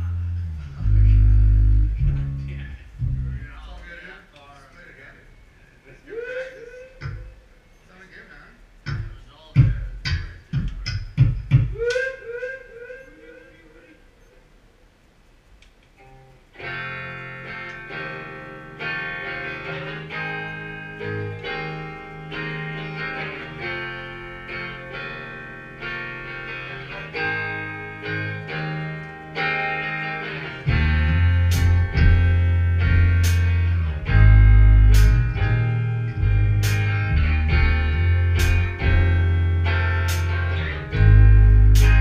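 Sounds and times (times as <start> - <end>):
electric guitar playing: 0.0 - 3.5, 16.0 - 42.0
bass guitar: 0.0 - 3.9, 16.6 - 42.0.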